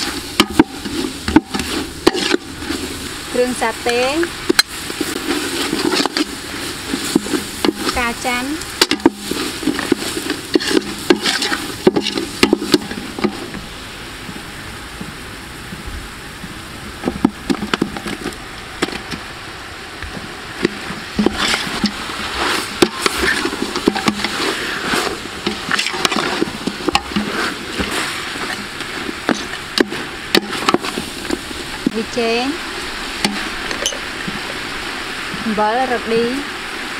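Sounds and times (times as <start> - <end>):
ladle stirring and scraping pot: 0.0 - 14.5, 20.1 - 34.7
food sizzling: 0.0 - 36.9.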